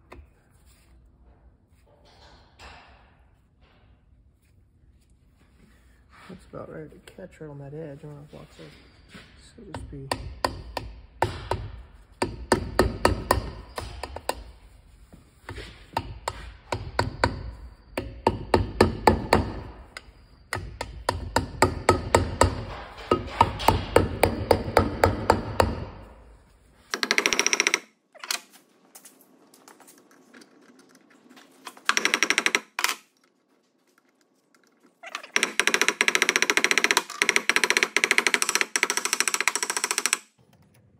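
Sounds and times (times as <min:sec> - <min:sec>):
hammer tapping on metal: 0:09.7 - 0:14.5, 0:15.5 - 0:26.2.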